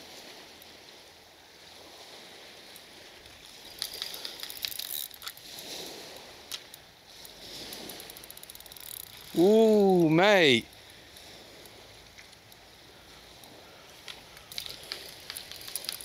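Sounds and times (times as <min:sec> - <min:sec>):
fishing reel clicking and rattling: 0:03.4 - 0:12.6, 0:13.4 - 0:16.0
faint water wash: 0:05.4 - 0:16.0.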